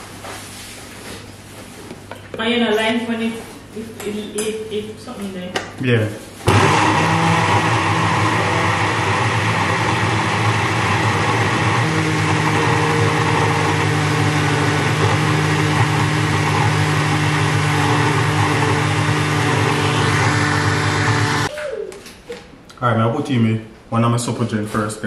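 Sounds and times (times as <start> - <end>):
blender motor running: 6.5 - 21.5.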